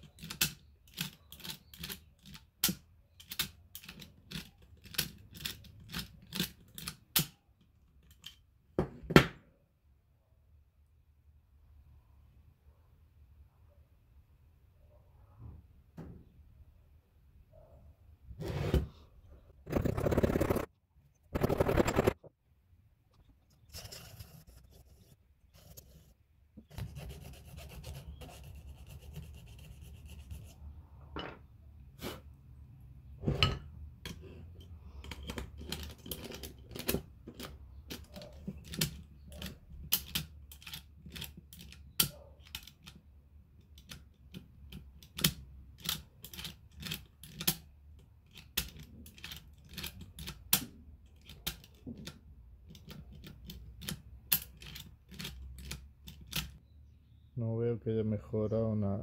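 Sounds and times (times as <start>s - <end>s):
metal file rasping on key: 26.7s - 30.6s.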